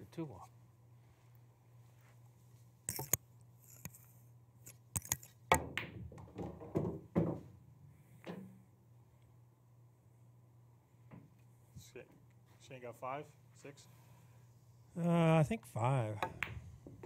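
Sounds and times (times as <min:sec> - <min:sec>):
ball rolling in pocket: 0:05.0 - 0:07.5
pool balls clacking: 0:05.5 - 0:07.5
cue tip striking ball: 0:16.2 - 0:17.0.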